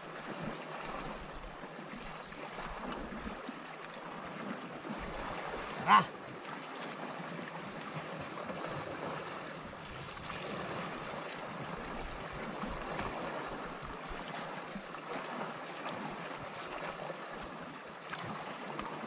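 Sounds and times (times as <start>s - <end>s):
sea water washing: 0.0s - 19.0s.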